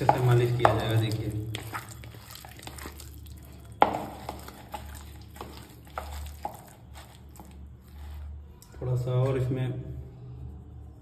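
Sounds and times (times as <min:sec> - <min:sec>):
hands squishing wet fish: 0:00.0 - 0:08.4.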